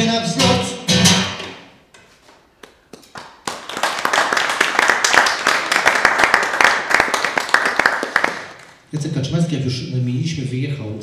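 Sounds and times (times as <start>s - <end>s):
audience applauding: 3.0s - 8.8s.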